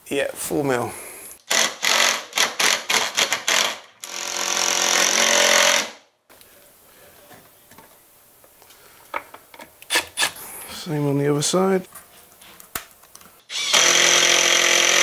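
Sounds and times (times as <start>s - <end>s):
impact driver driving a screw: 1.5s - 6.0s, 13.5s - 15.0s.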